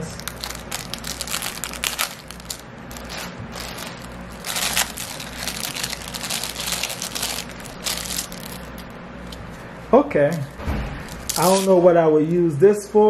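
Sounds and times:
plastic bag crinkling: 0.0 - 9.6, 11.1 - 11.8.

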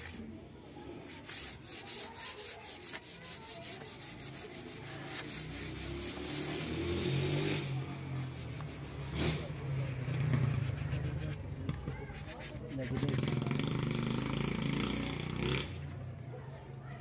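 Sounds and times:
sandpaper rubbing on wood: 1.0 - 11.4, 12.1 - 13.2.

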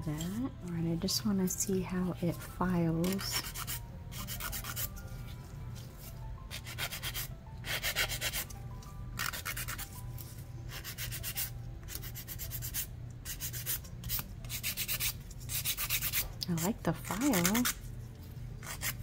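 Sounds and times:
nail file rasping: 3.0 - 4.9, 6.5 - 8.5, 9.2 - 10.0, 10.7 - 16.3, 17.0 - 17.8, 18.6 - 19.0.

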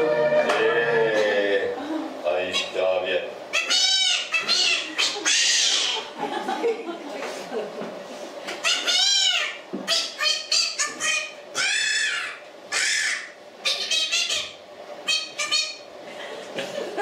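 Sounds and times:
high-pitched squawking puppet voice: 3.5 - 6.1, 8.6 - 15.8.

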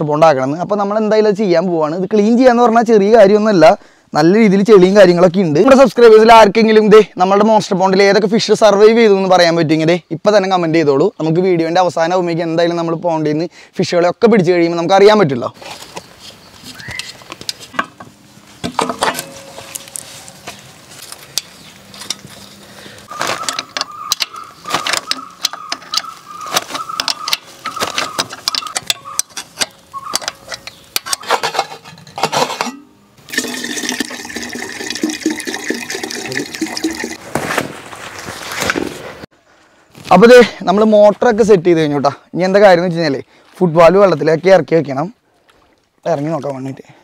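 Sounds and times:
fuel pouring into tank: 33.2 - 37.2.

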